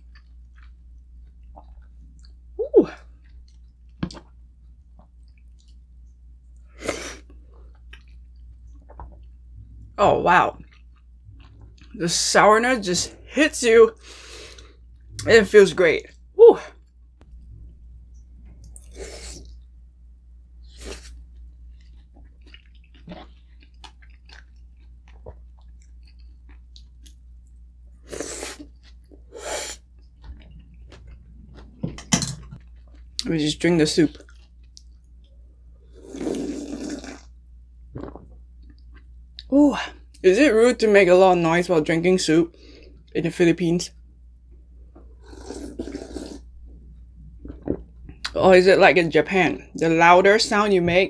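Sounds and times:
chewing food: 0.0s - 12.0s, 20.9s - 31.9s, 32.5s - 33.3s, 34.0s - 37.3s
quiet eating sounds: 0.0s - 12.4s, 20.6s - 40.2s, 43.9s - 48.6s
steady low hum: 0.0s - 51.0s.

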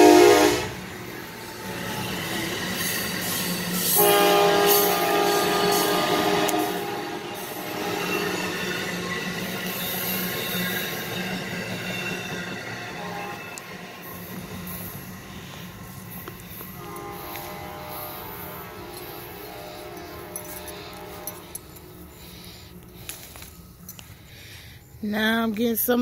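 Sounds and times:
horn sounding a chord: 0.0s - 0.8s, 3.9s - 8.1s, 16.7s - 21.9s.

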